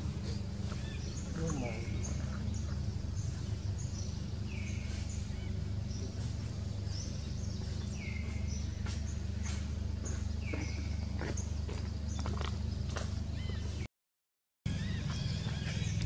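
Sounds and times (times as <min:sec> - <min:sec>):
bird calling: 0:00.0 - 0:13.9, 0:14.7 - 0:16.0
low background rumble: 0:00.0 - 0:13.9.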